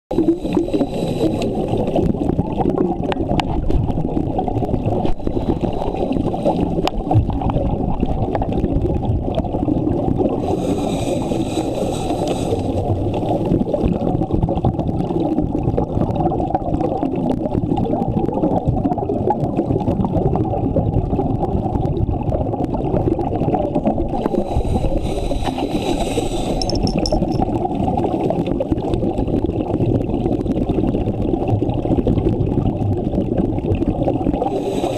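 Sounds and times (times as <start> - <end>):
muffled underwater rumble: 0.1 - 34.9.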